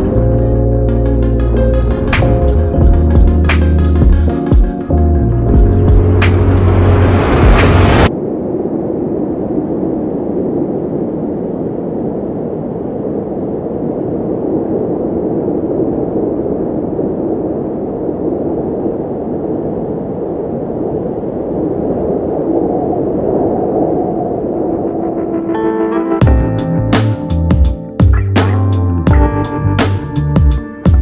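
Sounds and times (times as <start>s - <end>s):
wind blowing across microphone: 0.0s - 25.7s.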